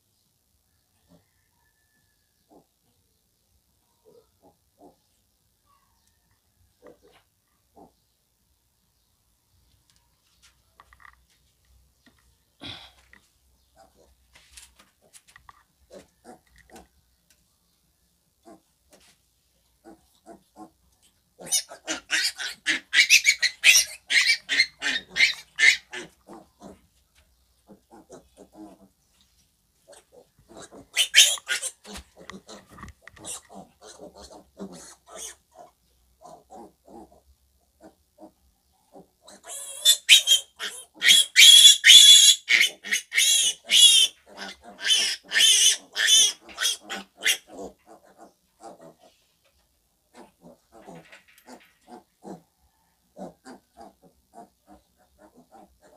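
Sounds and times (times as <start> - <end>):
piglets squealing: 21.4 - 26.2, 30.6 - 32.6, 33.2 - 35.4, 39.3 - 48.9
piglets grunting: 21.4 - 26.9, 27.6 - 29.0, 29.9 - 37.2, 37.8 - 49.2, 50.1 - 52.5, 53.1 - 55.9.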